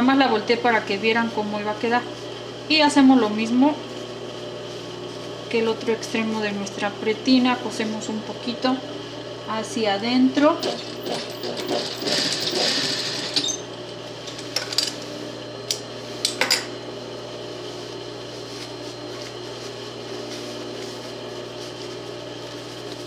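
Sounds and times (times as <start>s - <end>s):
low motor hum: 0.0s - 23.0s
sewing machine stitching: 10.6s - 13.6s.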